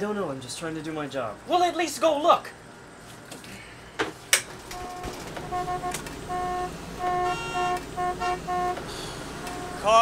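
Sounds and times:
low traffic hum: 0.0 - 10.0
car horns honking: 4.7 - 10.0.

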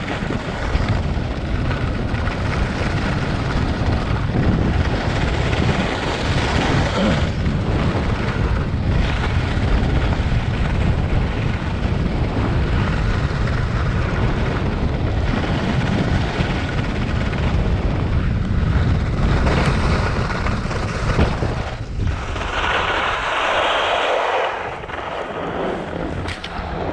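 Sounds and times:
skis scraping: 0.0 - 26.9
wind buffeting microphone: 0.0 - 26.9
skis hissing over snow: 22.1 - 26.1.

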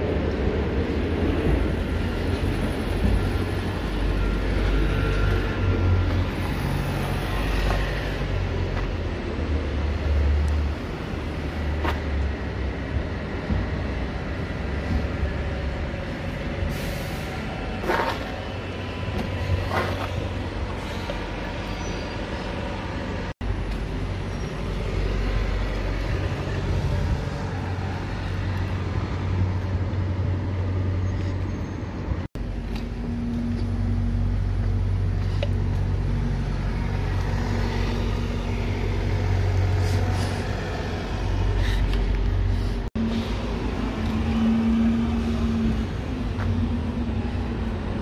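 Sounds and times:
diesel bus engines droning: 0.0 - 48.0
air brakes hissing: 16.6 - 17.6.

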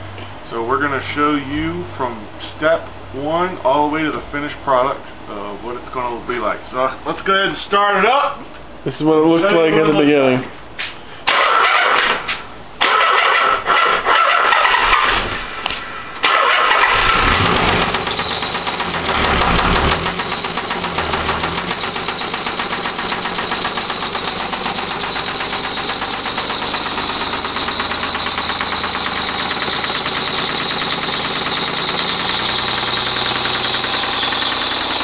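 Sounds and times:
car engine idling: 14.7 - 35.0
engine knocking: 16.3 - 35.0.

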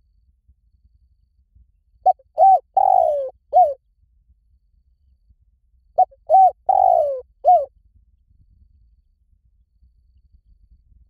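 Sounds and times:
dove cooing: 2.1 - 3.8, 6.0 - 7.7.

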